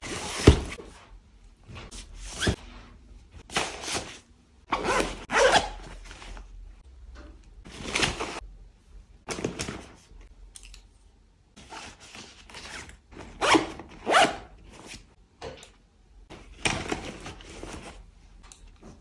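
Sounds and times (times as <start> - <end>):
backpack zippers and fabric rustling: 4.7 - 6.4, 11.6 - 15.0.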